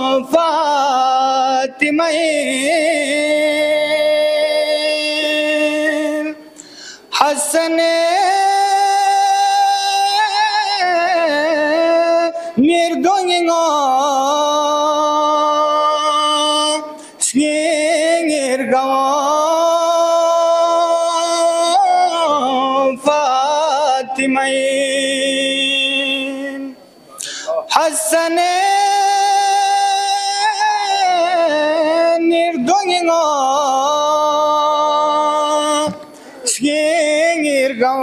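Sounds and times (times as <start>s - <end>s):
singer breathing: 6.4s - 7.2s, 12.4s - 12.6s, 16.9s - 17.2s, 27.1s - 27.6s, 36.0s - 36.5s.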